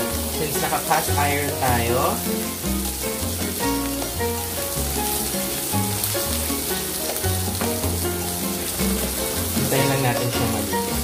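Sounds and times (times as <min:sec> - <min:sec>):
background music with low notes: 0:00.0 - 0:11.0
steak sizzling in a skillet: 0:00.0 - 0:11.0.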